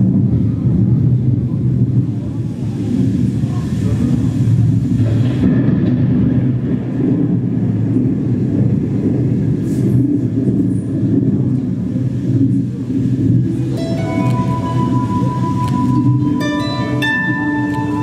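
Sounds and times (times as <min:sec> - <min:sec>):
low rumbling music drone: 0:13.0 - 0:18.0.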